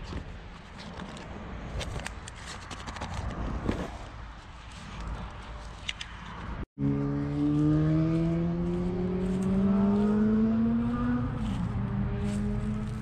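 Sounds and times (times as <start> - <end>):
engine accelerating: 6.8 - 13.0.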